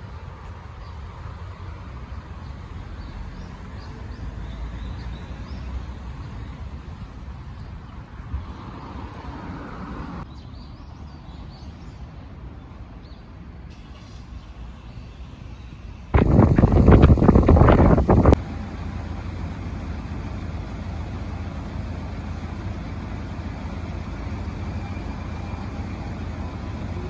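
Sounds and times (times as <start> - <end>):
low wind rumble: 15.9 - 27.0.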